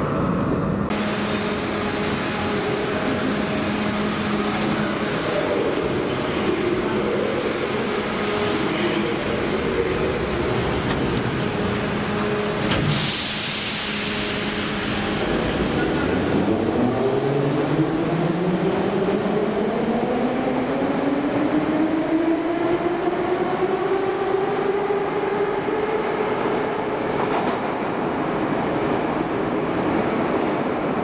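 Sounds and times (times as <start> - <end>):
wheels rumbling on rails: 0.1 - 13.0.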